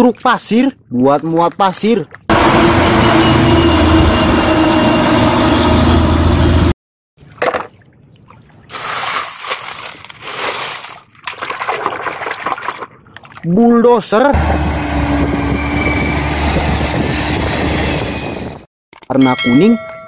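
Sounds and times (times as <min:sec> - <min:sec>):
water splashing: 0:07.2 - 0:13.8
wet gravel rattling: 0:08.7 - 0:13.0
diesel truck engine driving by: 0:14.4 - 0:16.7.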